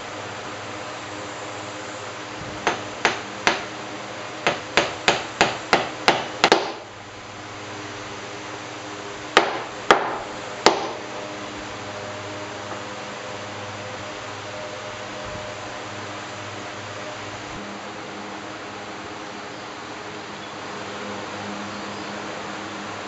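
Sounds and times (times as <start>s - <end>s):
hammer tapping wooden plug: 2.6s - 3.7s, 4.4s - 6.8s, 9.4s - 11.0s.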